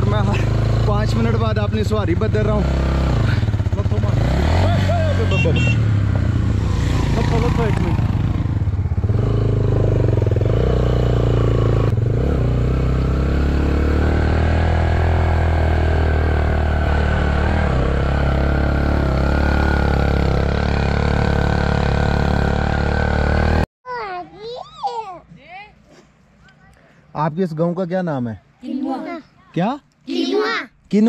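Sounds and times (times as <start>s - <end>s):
motorcycle engine running: 0.0s - 23.7s.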